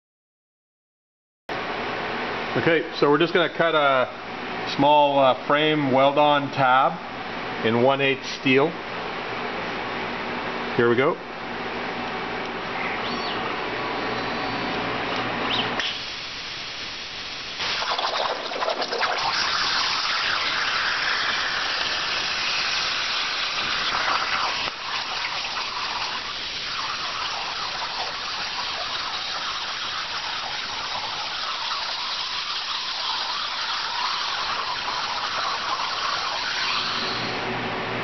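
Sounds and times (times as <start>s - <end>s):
plasma torch hissing: 15.8s - 37.4s.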